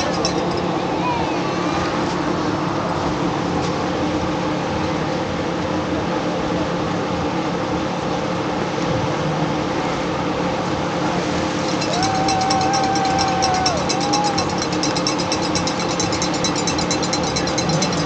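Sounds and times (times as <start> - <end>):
machine hum: 9.5 - 18.0.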